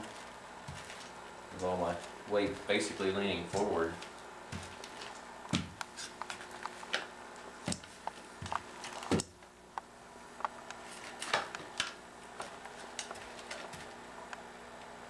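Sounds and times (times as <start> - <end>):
soft thumps on carpet: 4.5 - 5.8.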